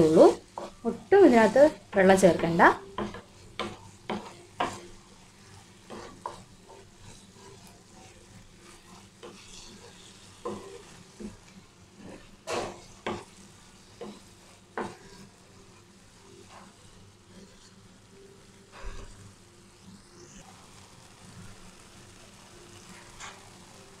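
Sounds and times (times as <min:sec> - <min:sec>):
wooden spatula scraping a pan: 0:00.0 - 0:17.8, 0:18.7 - 0:19.2
faint sizzle of mushrooms cooking: 0:00.0 - 0:24.0.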